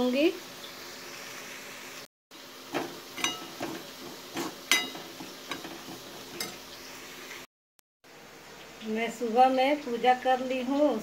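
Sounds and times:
semolina sizzling in hot oil: 0:00.0 - 0:11.0
utensil scraping metal pan: 0:02.7 - 0:06.7.

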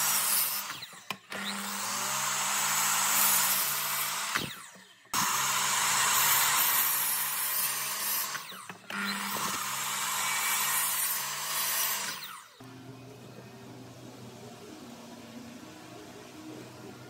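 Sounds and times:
miter saw cutting wood: 0:00.0 - 0:12.6.

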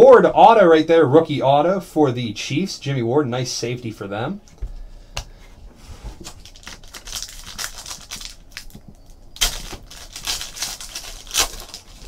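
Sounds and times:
sharp rip of wrapper: 0:06.2 - 0:08.8, 0:09.4 - 0:12.0
wrapper crinkling and tearing: 0:06.2 - 0:12.0.

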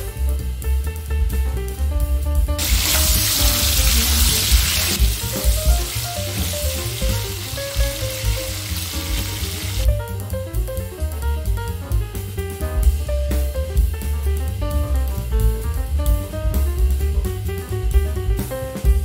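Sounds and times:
background music with steady beat: 0:00.0 - 0:19.0
food sizzling in hot oil: 0:02.6 - 0:09.9.

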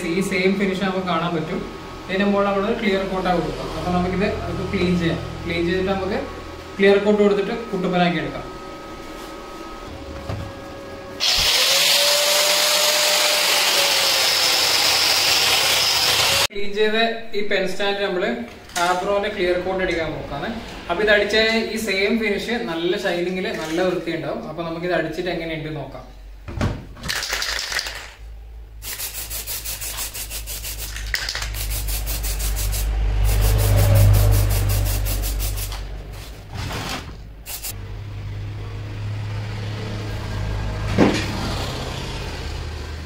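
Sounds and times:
wire brush grinder scouring metal: 0:11.2 - 0:16.5
aerosol spray can hissing: 0:28.8 - 0:35.8, 0:37.4 - 0:37.8.

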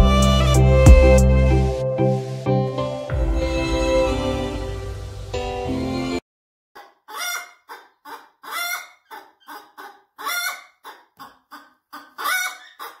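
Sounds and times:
hen cackling and squawking: 0:06.8 - 0:13.0.

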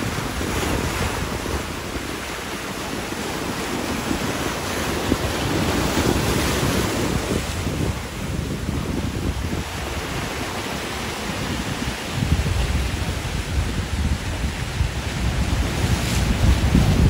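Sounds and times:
surf churning against rocks: 0:00.0 - 0:17.0
wind buffeting microphone: 0:00.0 - 0:17.0.

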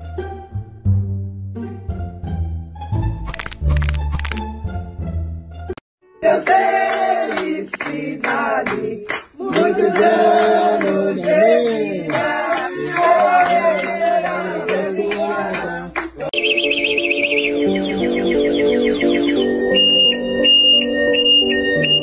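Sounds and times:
voices singing together: 0:06.2 - 0:16.4
hand claps: 0:06.4 - 0:16.4.

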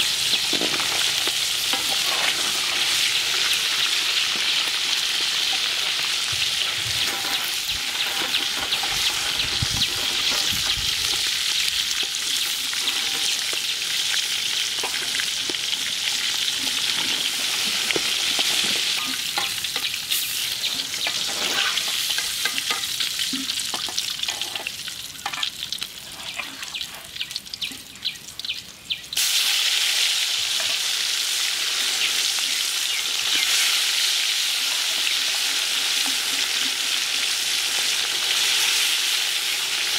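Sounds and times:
fish deep-frying in oil: 0:00.0 - 0:39.9
metal ladle scraping pan: 0:00.3 - 0:03.2, 0:05.5 - 0:10.8, 0:12.0 - 0:13.6, 0:16.5 - 0:27.1.

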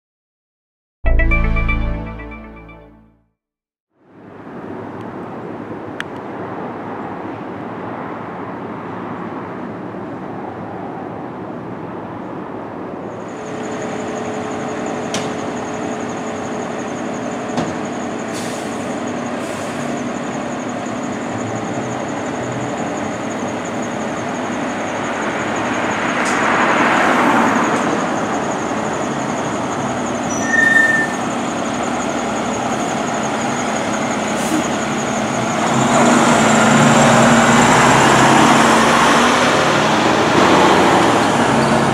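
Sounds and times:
short beep: 0:01.1 - 0:03.2
air brakes hissing: 0:18.2 - 0:20.1, 0:34.3 - 0:35.1.

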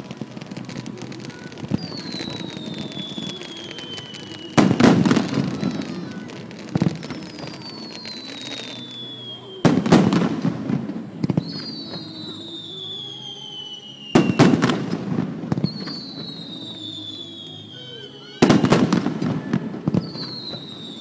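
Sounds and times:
firework whistling: 0:00.0 - 0:21.0.

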